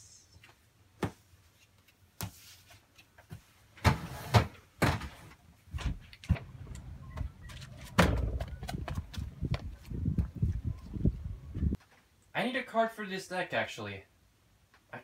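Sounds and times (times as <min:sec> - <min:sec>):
door banging: 0:07.2 - 0:09.0
knocks and thuds: 0:07.2 - 0:10.3.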